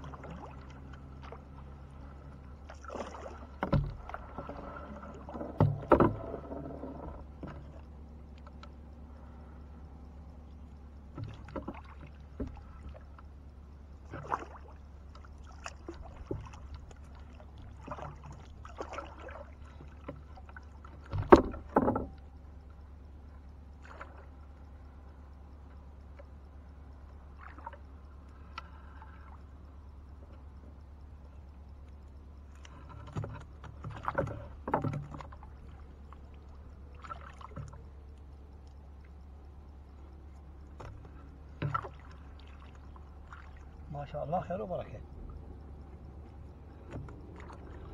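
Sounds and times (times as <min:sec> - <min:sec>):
steady low hum: 0:00.0 - 0:47.9
water splashing and dripping: 0:02.7 - 0:05.9, 0:14.0 - 0:21.9, 0:32.6 - 0:37.8, 0:40.8 - 0:44.9
net knocking against hull: 0:03.0 - 0:04.5.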